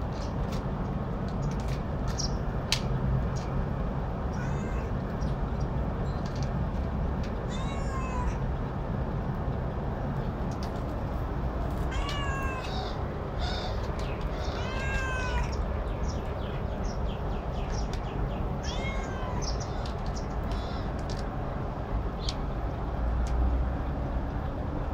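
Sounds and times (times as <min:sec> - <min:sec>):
cat meowing: 0:04.3 - 0:05.0, 0:07.5 - 0:08.4, 0:11.8 - 0:15.6, 0:18.6 - 0:20.0
steady low rumble: 0:08.2 - 0:18.6.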